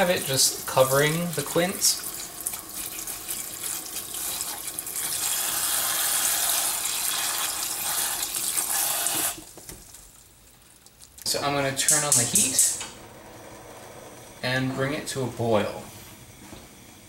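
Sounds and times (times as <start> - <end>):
faucet spray into saucepan: 2.5 - 9.4.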